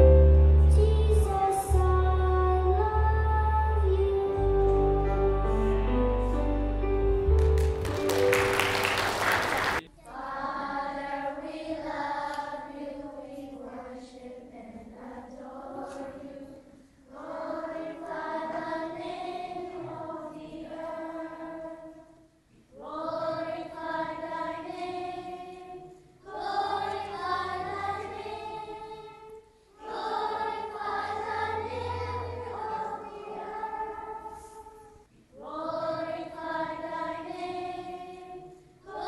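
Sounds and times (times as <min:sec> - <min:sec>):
choir singing slow song: 0:00.0 - 0:06.5, 0:08.4 - 0:39.0
sustained accompaniment chords: 0:00.0 - 0:09.7.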